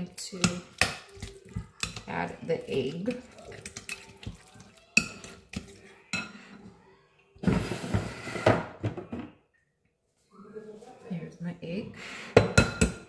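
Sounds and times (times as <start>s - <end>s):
dishes and utensils clinking: 0.2s - 6.7s, 12.3s - 13.0s.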